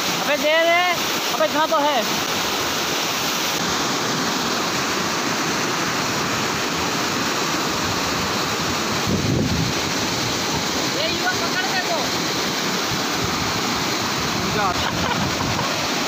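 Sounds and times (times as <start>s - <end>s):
stream rushing over rocks: 0.0s - 16.0s.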